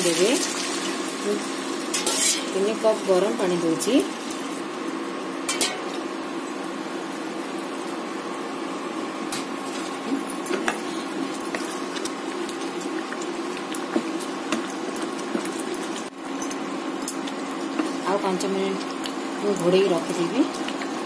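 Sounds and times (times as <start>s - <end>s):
water pouring into pan: 0.0s - 1.9s
curry bubbling: 9.7s - 21.0s.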